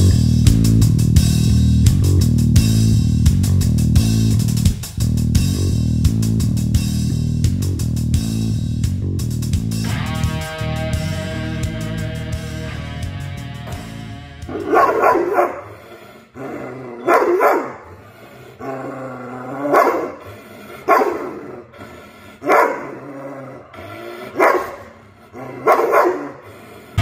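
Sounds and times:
dog barking: 0:14.5 - 0:15.8, 0:17.0 - 0:17.9, 0:19.6 - 0:20.2, 0:20.8 - 0:21.5, 0:22.4 - 0:23.0, 0:24.3 - 0:26.5.

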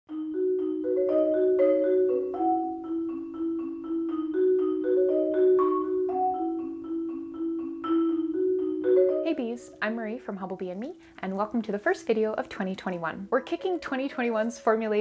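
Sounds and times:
bright melody of struck notes: 0:00.1 - 0:10.5.

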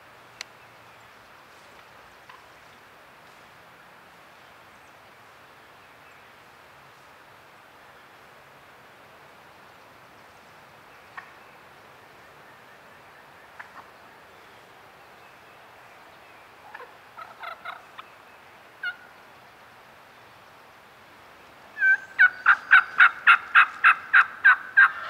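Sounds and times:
wild turkey calling: 0:11.1 - 0:11.4, 0:13.4 - 0:14.0, 0:16.6 - 0:18.2, 0:18.8 - 0:19.2, 0:21.8 - 0:25.0.

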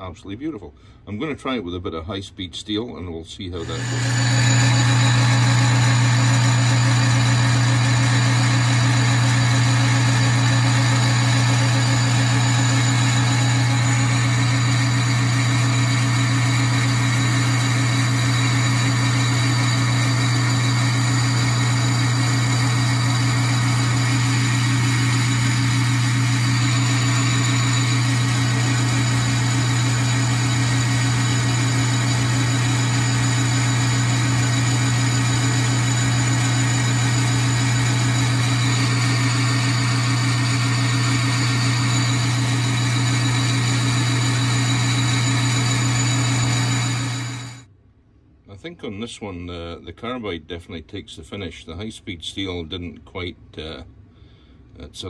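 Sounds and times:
metal lathe humming: 0:03.6 - 0:47.6.

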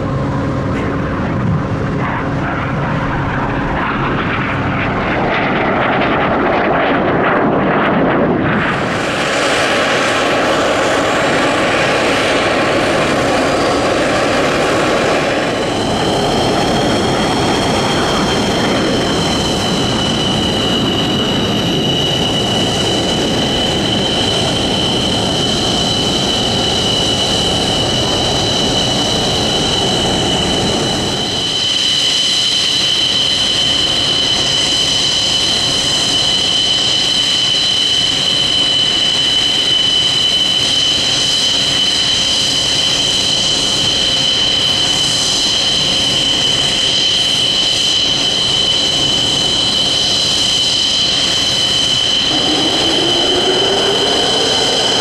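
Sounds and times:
low rumble: 0:00.0 - 0:10.2
jet engine idling whine: 0:00.0 - 0:55.0.

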